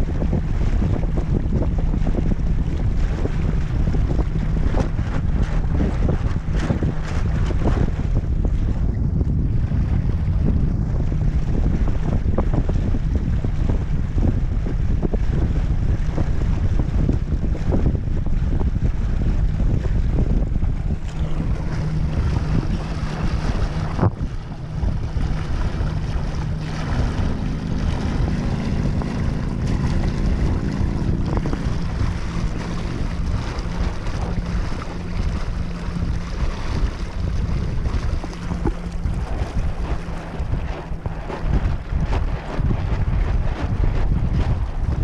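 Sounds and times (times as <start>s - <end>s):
water splashing past hull: 0.0s - 45.0s
wind buffeting microphone: 0.0s - 45.0s.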